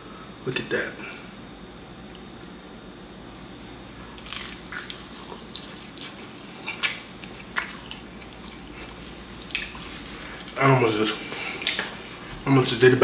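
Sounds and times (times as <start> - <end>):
wet chewing and mouth clicks: 4.2 - 10.6, 11.3 - 12.2.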